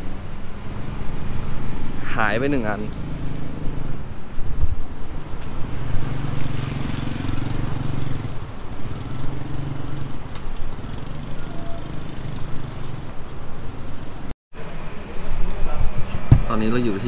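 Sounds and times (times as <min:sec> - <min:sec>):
cars and motorcycles passing: 0:00.0 - 0:17.0.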